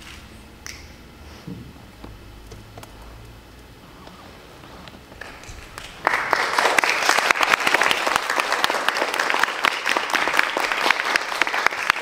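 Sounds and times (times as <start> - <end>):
audience applause: 5.2 - 12.0.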